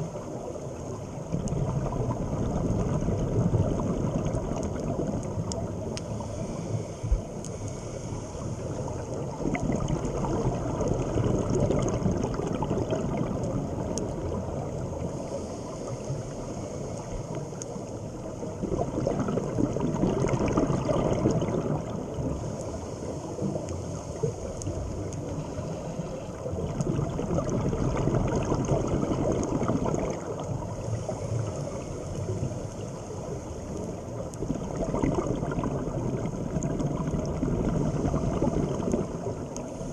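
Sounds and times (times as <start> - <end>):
muffled underwater rumble: 0.0 - 39.9
faint clicks: 0.7 - 1.9, 4.1 - 18.1, 22.3 - 30.7, 31.3 - 39.8
scuba diver exhaling bubbles: 1.3 - 5.5, 8.7 - 15.1, 18.4 - 22.4, 26.4 - 32.5, 34.4 - 39.9.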